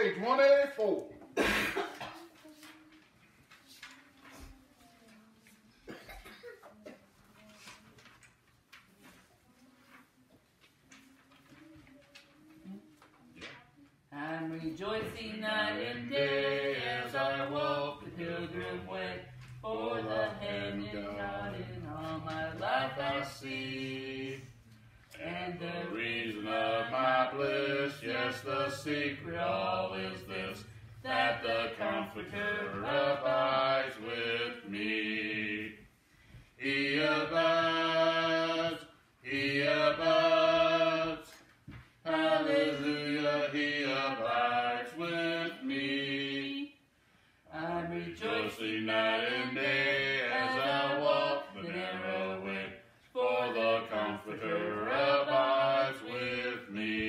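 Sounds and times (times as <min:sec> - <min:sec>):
woman singing a hymn: 0:14.1 - 0:24.5, 0:25.2 - 0:35.8, 0:42.0 - 0:46.7, 0:47.5 - 0:57.0.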